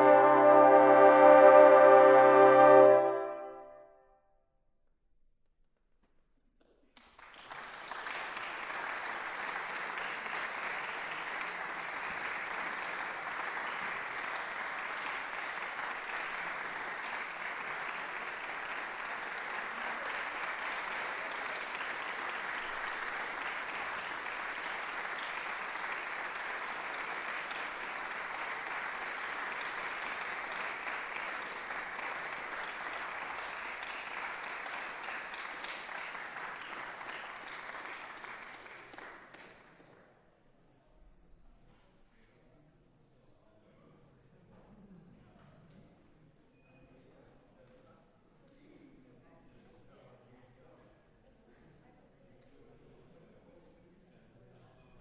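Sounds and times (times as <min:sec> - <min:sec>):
audience applauding: 0:07.0 - 0:39.9.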